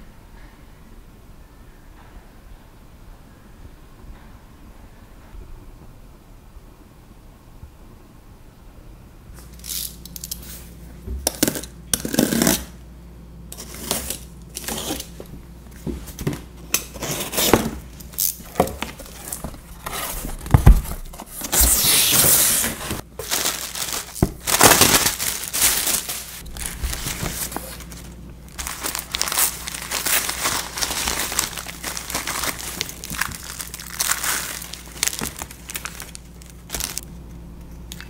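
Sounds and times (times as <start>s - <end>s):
packing tape ripping: 11.3s - 12.7s, 13.6s - 15.1s, 16.8s - 37.0s
bubble wrap and paper rustling: 13.6s - 37.1s.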